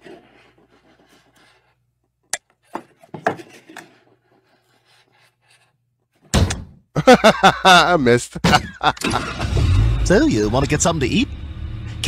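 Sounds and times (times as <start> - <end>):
rubbing scraping noises: 0.0 - 1.9, 2.5 - 6.2
sudden loud hit: 9.0 - 12.0.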